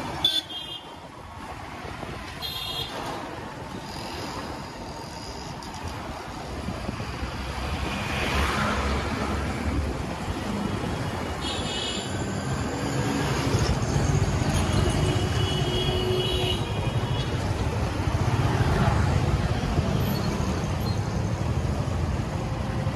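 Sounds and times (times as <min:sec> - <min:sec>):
traffic rumble and road noise: 0:00.0 - 0:22.9.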